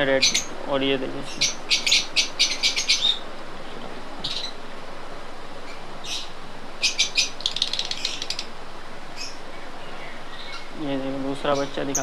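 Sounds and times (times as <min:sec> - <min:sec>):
lovebirds chirping shrilly: 0:00.0 - 0:00.6, 0:01.2 - 0:03.3, 0:05.6 - 0:10.8.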